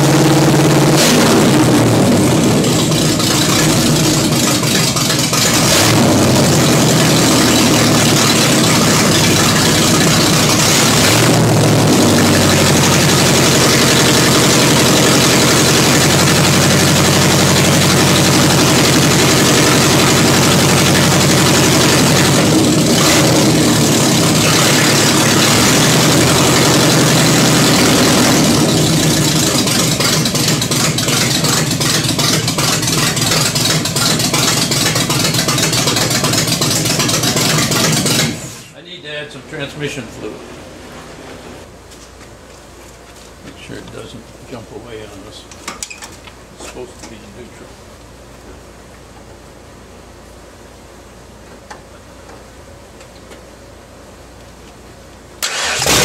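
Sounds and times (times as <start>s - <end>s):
engine running close up: 0.0s - 38.6s, 55.4s - 56.0s.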